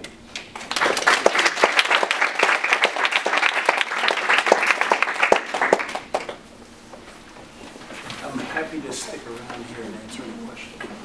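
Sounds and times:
audience applauding: 0.5s - 6.4s.

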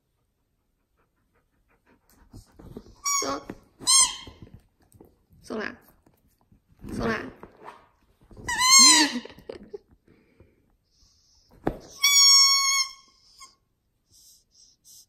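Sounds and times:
rubber squeaky toy squeaking: 2.9s - 4.6s, 8.4s - 9.4s, 11.7s - 13.6s.

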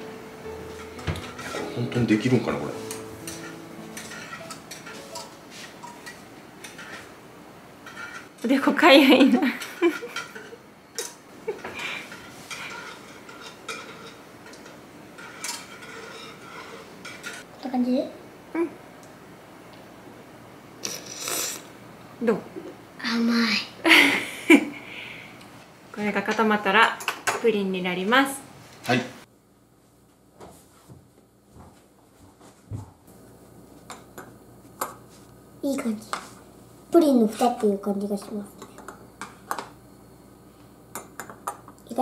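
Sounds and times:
whisk scraping metal bowl: 15.2s - 17.3s.

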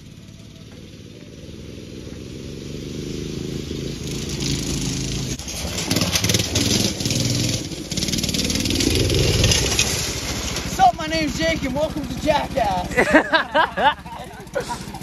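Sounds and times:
go-kart engine running hard: 0.0s - 15.0s
tyres crunching on gravel: 5.4s - 13.3s.

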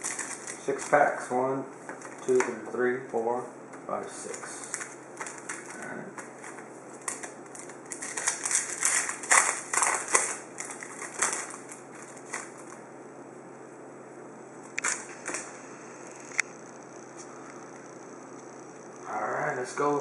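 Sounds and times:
foil wrapper crinkling and tearing: 0.0s - 1.2s, 4.3s - 12.8s.

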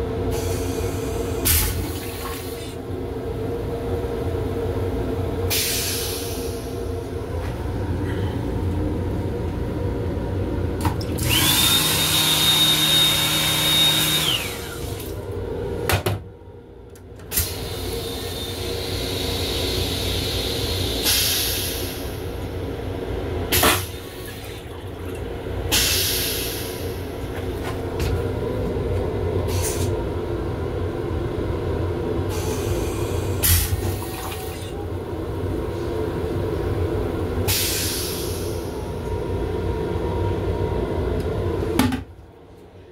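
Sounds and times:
train rumble and hum: 0.0s - 11.5s, 14.2s - 42.9s
air hissing: 5.5s - 6.8s, 18.5s - 22.2s, 25.7s - 27.0s, 37.5s - 38.7s.

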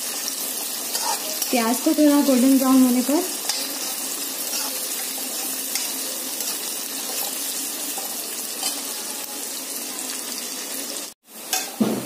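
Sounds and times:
onions sizzling in hot oil: 0.0s - 12.0s
spatula scraping: 0.6s - 1.6s, 3.4s - 9.0s.

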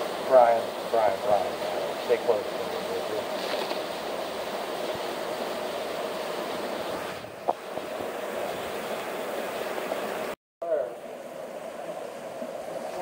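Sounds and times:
creek rushing over rocks: 0.0s - 10.4s.

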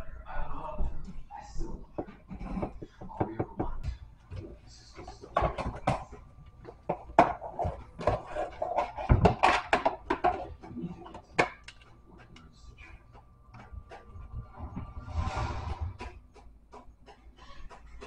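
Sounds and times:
voices talking: 0.0s - 9.2s, 10.2s - 15.1s
spoon knocking plastic cups: 2.0s - 14.8s, 16.0s - 18.0s.

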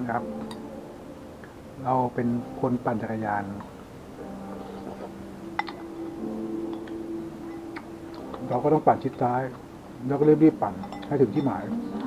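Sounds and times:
faint steady hum: 0.0s - 12.0s
spoon clinking on bowl: 5.6s - 5.9s, 10.8s - 11.6s.

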